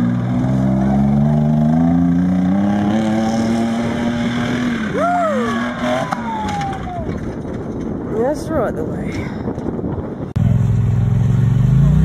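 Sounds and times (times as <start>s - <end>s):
truck engine revving: 0.0s - 7.0s, 10.4s - 12.0s
person yelling: 4.9s - 5.6s.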